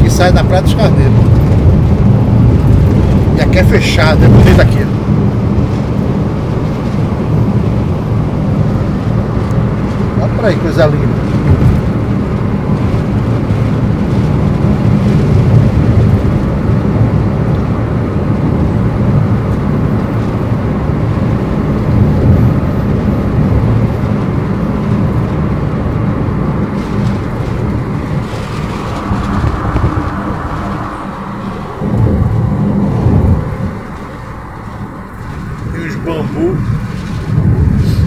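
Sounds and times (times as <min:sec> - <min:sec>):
car engine and tyre noise: 0:00.0 - 0:38.0.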